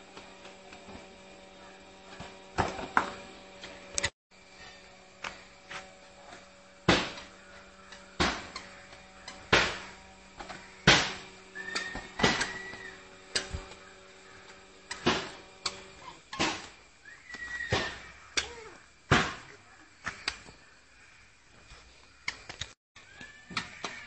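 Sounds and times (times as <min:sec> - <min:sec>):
ball kicked on concrete thuds: 0:08.2 - 0:08.6.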